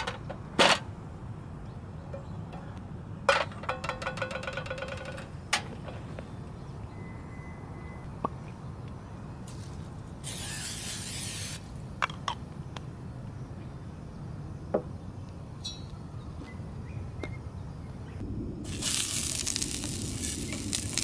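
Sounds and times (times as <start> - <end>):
cooking spray hissing: 10.2 - 11.7, 18.6 - 21.0.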